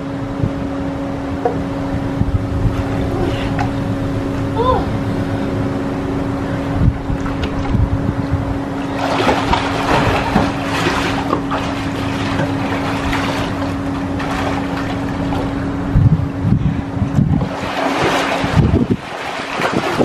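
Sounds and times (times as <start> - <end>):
steady low hum: 0.0 - 20.0
wind on microphone: 0.0 - 20.0
water splashing from swimming: 8.8 - 15.8, 17.2 - 20.0.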